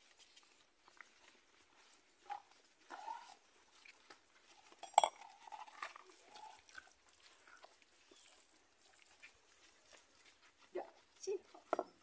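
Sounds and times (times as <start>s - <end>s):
metal spoon clinking on pot: 4.8s - 5.2s.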